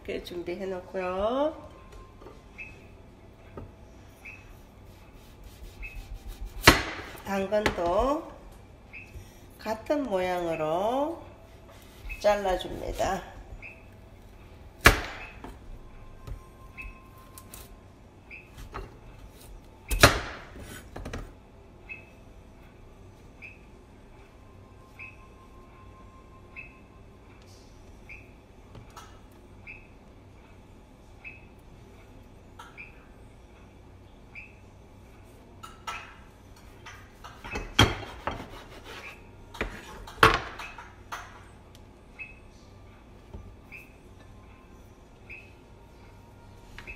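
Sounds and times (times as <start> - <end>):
knife scraping through bread: 4.6 - 6.7, 37.9 - 40.0.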